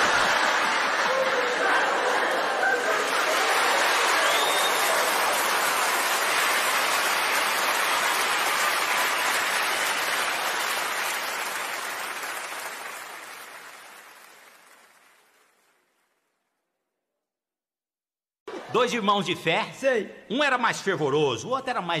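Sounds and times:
audience applauding: 0:00.0 - 0:16.5.

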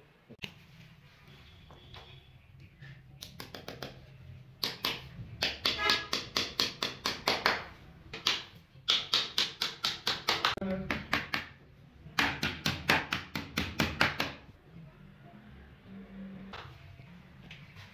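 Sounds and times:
hammer tapping nails: 0:04.6 - 0:07.6, 0:08.2 - 0:11.5.

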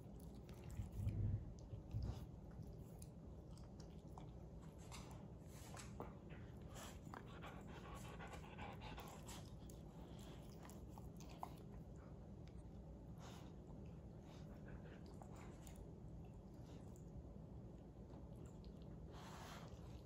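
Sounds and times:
dogs licking and smacking: 0:00.0 - 0:20.0
low steady hum: 0:00.0 - 0:20.0
dog panting: 0:04.8 - 0:12.2.

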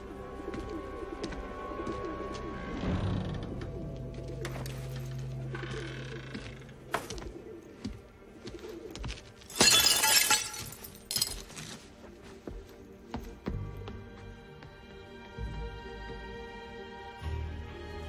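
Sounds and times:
soft music: 0:00.0 - 0:18.0
birds calling: 0:04.2 - 0:09.4
window glass shattering: 0:09.5 - 0:11.4.

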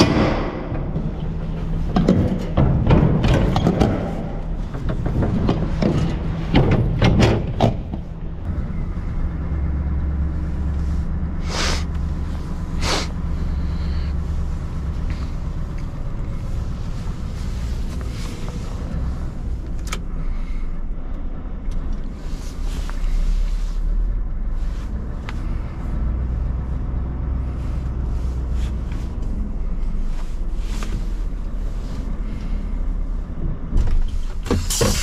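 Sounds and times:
diesel engine rumbling: 0:00.0 - 0:35.0
short hisses: 0:11.4 - 0:12.0, 0:12.7 - 0:14.2.

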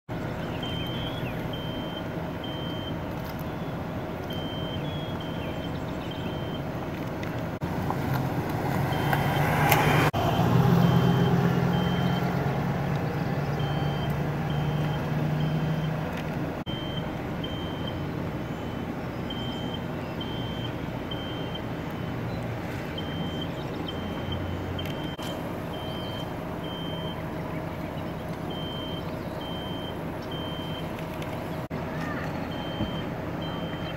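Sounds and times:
high electronic beeping: 0:00.6 - 0:06.7, 0:10.2 - 0:12.4, 0:13.3 - 0:16.1, 0:16.7 - 0:18.0, 0:18.7 - 0:22.2, 0:22.9 - 0:27.2, 0:28.5 - 0:30.9
vehicle engine passing: 0:00.6 - 0:33.9.

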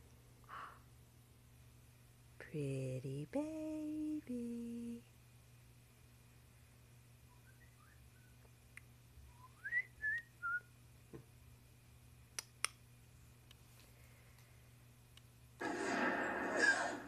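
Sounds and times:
soft whistling: 0:07.3 - 0:08.4, 0:09.3 - 0:10.7.

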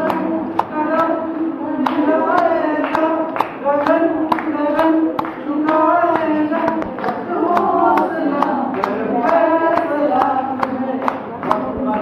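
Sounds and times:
person singing: 0:00.0 - 0:12.0
sharp steady beat: 0:00.0 - 0:12.0.

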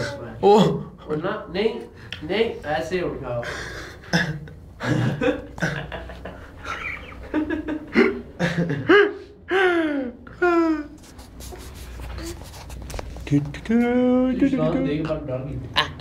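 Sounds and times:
laughter: 0:04.8 - 0:09.2.

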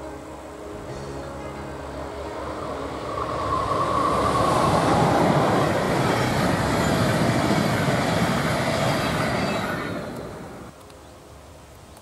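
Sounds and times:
train wheels rushing on rails: 0:02.1 - 0:10.7.

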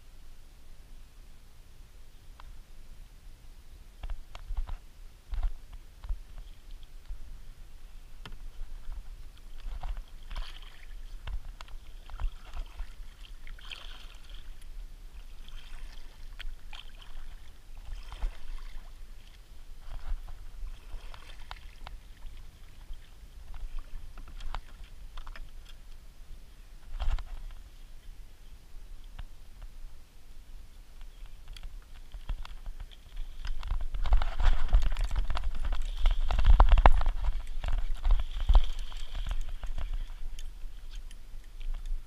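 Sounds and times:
paddle splashing water: 0:05.4 - 0:25.9, 0:31.0 - 0:42.0
reeds brushing plastic hull: 0:08.4 - 0:25.6, 0:31.9 - 0:41.0.

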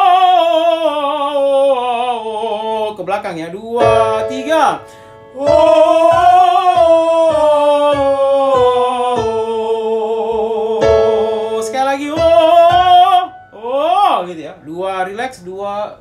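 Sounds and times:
person singing long notes: 0:03.8 - 0:14.2
instrumental accompaniment: 0:03.8 - 0:14.7.

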